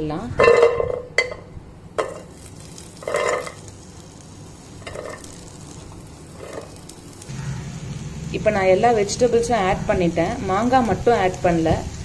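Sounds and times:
vegetables clattering into pot: 2.0s - 3.7s, 4.8s - 5.8s.

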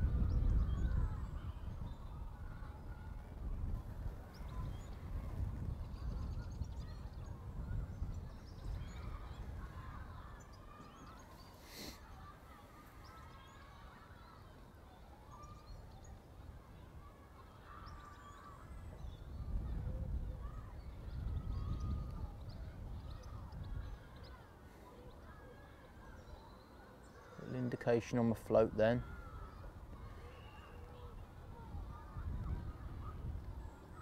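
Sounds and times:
wind rumbling on microphone: 0.0s - 12.3s, 15.3s - 26.4s, 28.4s - 34.0s
birds calling: 4.2s - 34.0s
rustling hiss: 11.4s - 12.1s.

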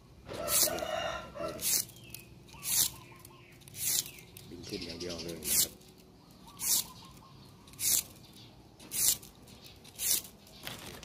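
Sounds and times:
sandpaper scraping bamboo strips: 0.3s - 11.0s.

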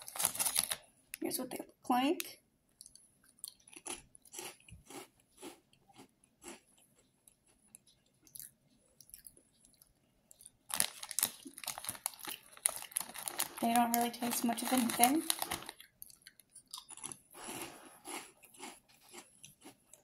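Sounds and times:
crunchy snack chewing: 0.0s - 0.8s, 2.8s - 20.0s
plastic snack packet rustling: 0.0s - 0.9s, 10.3s - 19.2s.

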